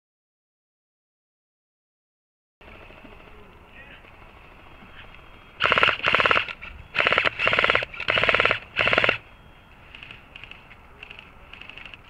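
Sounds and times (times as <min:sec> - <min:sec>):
airsoft gun firing bursts: 0:05.6 - 0:09.2.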